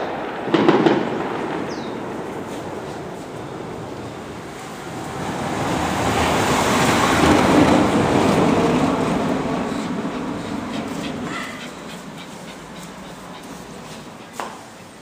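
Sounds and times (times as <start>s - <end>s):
vehicle passing on street: 0.0s - 15.0s
dog claws ticking on tile floor: 10.7s - 15.0s.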